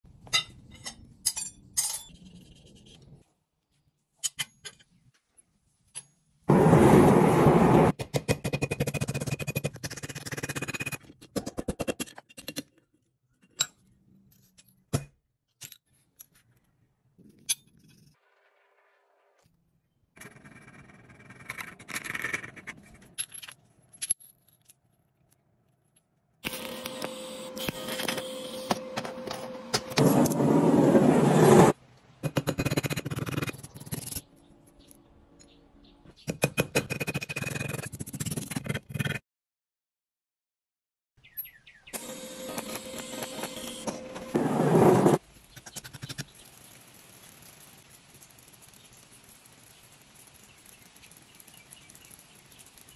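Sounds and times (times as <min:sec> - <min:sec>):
steel pieces clinking on table: 0:00.3 - 0:02.2
welding arc buzzing hiss: 0:26.4 - 0:30.8.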